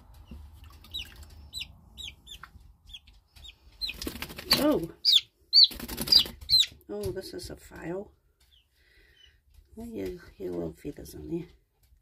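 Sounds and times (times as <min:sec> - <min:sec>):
chick peeping: 0:00.0 - 0:06.8.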